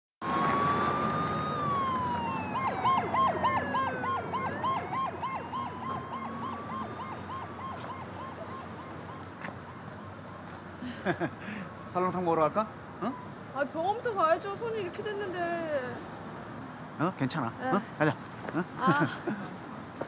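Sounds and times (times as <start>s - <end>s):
fast yelping siren tone: 0.2s - 9.8s
police siren wailing: 0.2s - 10.4s.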